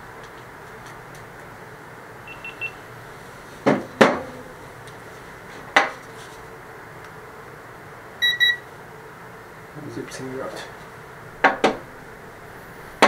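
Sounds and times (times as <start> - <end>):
short electronic beeps: 2.3 - 2.8, 8.2 - 8.6.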